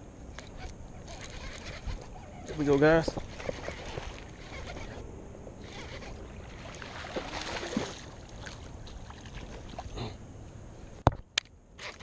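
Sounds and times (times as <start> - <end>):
fish splashing in water: 5.8 - 9.9.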